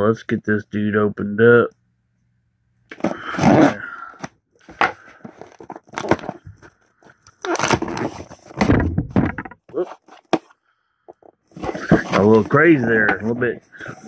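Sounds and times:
cardboard box handled: 11.5 - 14.0.

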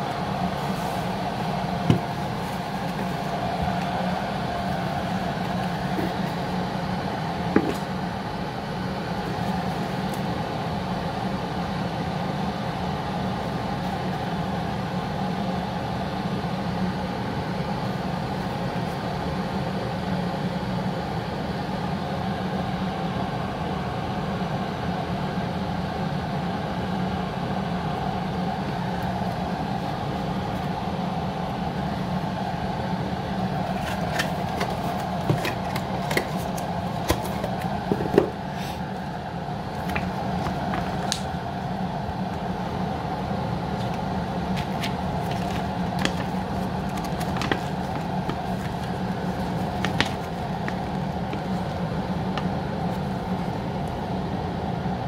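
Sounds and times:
electric kettle humming: 0.0 - 55.0
cardboard box and paper rustling: 33.6 - 38.8, 43.8 - 53.5.

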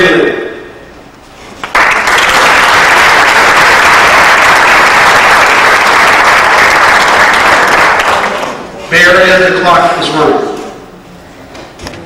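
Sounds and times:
audience applauding: 1.6 - 8.7.

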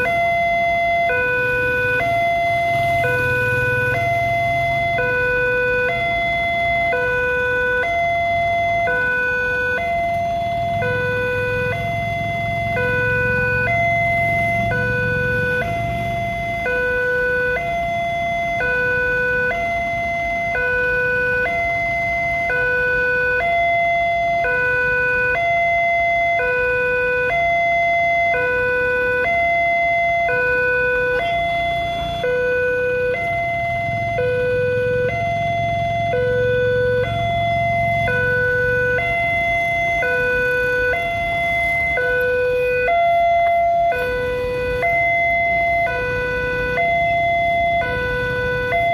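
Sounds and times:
two-tone level crossing alarm: 0.0 - 48.9
low engine rumble: 28.8 - 48.9.

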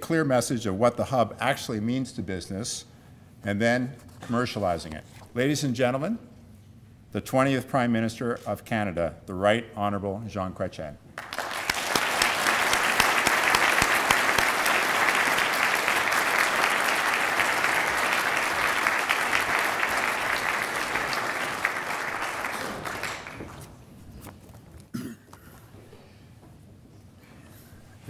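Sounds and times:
large audience applauding: 11.2 - 23.8.

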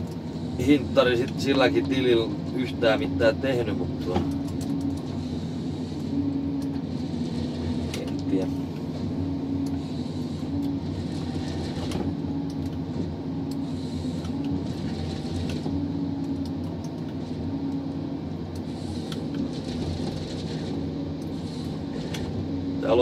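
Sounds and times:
diesel engine and hydraulics: 0.0 - 23.0
humming tone: 4.2 - 22.8
harvester head sawing: 18.7 - 22.4.

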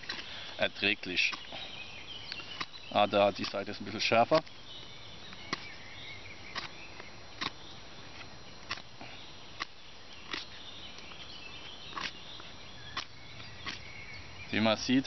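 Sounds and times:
birds singing: 0.0 - 15.0
plastic scraper scraping branch: 2.4 - 4.5.

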